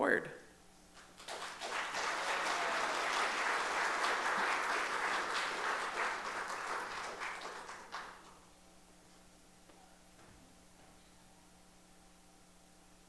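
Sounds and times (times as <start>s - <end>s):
audience applauding: 1.0s - 8.4s.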